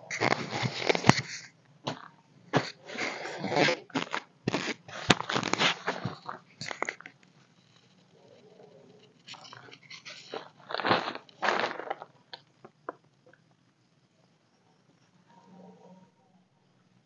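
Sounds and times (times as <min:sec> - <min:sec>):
plastic tarp crinkling: 0:02.6 - 0:07.1, 0:09.3 - 0:12.1.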